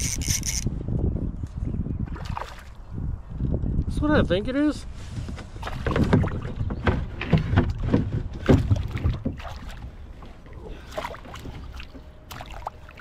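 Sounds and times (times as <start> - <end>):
wind rumble on microphone: 0.0 - 12.7
water knocking and splashing on kayak: 5.4 - 13.0.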